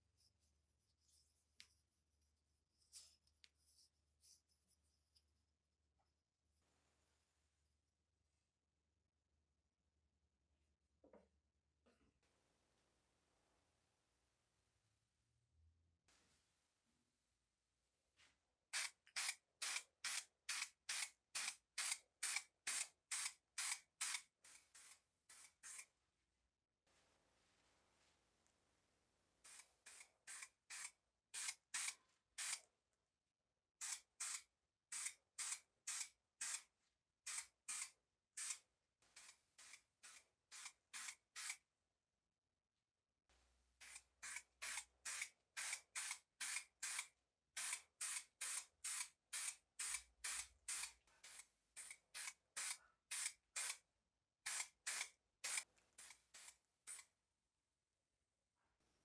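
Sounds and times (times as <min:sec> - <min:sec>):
spray paint can hissing in bursts: 0:18.7 - 0:25.8, 0:29.5 - 0:32.6, 0:33.8 - 0:36.6, 0:37.3 - 0:38.6, 0:39.2 - 0:41.6, 0:43.8 - 0:53.8, 0:54.5 - 0:57.1.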